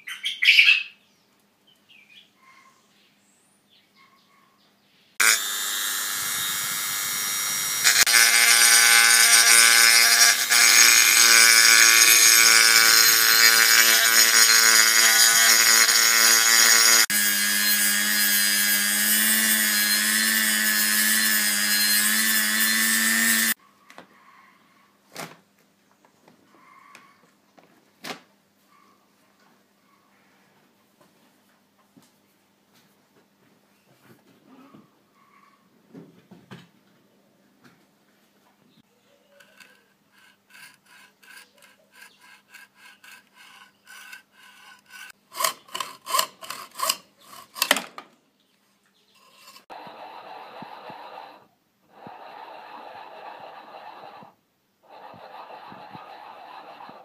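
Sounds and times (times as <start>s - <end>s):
rotary tool grinding metal: 5.2s - 23.6s, 39.4s - 47.8s, 49.2s - 49.8s.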